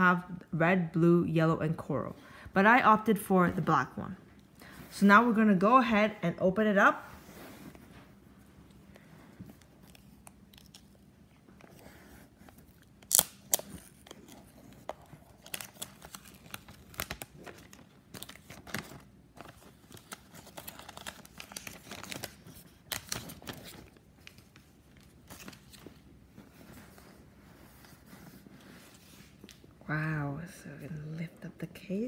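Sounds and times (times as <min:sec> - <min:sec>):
plastic shrink-wrap crinkling: 0:12.4 - 0:27.3.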